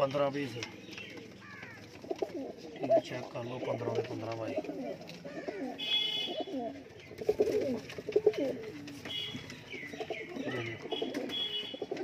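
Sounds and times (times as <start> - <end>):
pigeons cooing: 0.5 - 12.0.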